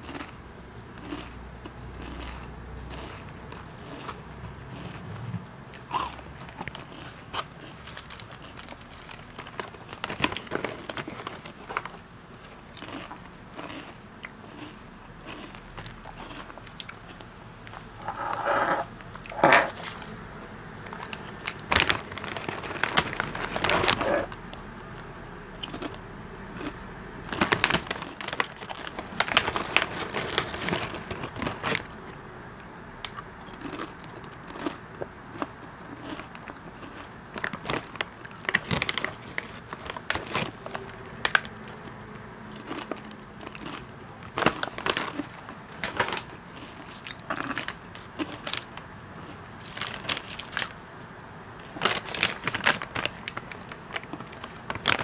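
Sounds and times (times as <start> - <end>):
potato chips crunching: 0.0 - 0.4, 1.0 - 5.1, 5.7 - 18.5, 20.9 - 26.0, 26.6 - 32.1, 33.1 - 50.8, 51.6 - 55.0
plastic chip bag crinkling: 5.8 - 16.8, 20.9 - 25.0, 26.6 - 32.0, 35.4 - 41.8, 42.6 - 48.8, 49.5 - 50.8, 51.6 - 55.0.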